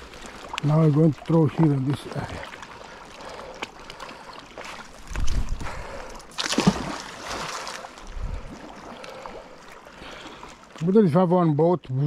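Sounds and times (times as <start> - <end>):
magnet splashing into water: 6.3 - 8.0.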